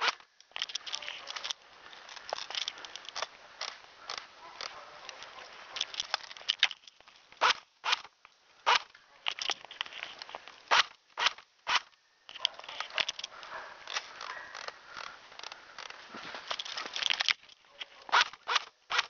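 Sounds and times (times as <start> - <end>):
footsteps crunching through snow: 16.0 - 17.0.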